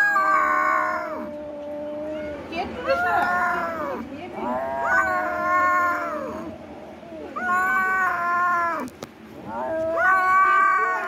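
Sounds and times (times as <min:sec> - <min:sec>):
cat meowing: 0:00.0 - 0:11.0.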